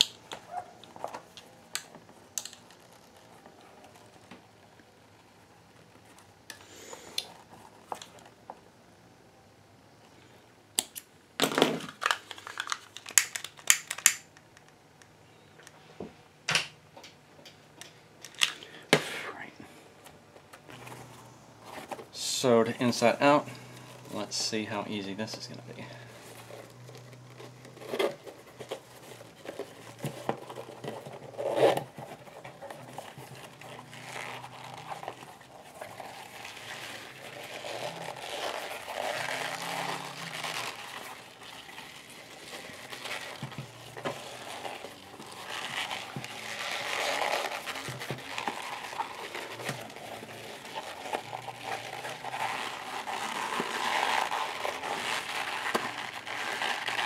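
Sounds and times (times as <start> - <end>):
leather creasing and rustling: 0.0 - 4.7, 20.4 - 57.0.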